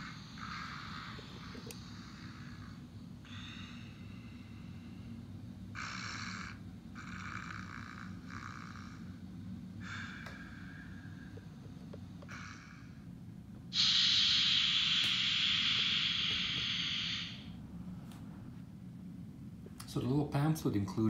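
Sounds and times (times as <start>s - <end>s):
steam exhaust chuffs: 13.7s - 17.5s.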